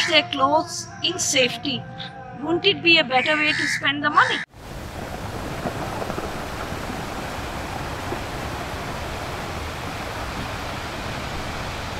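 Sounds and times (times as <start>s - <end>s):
wind: 2.2s - 11.9s
sea: 4.5s - 11.9s.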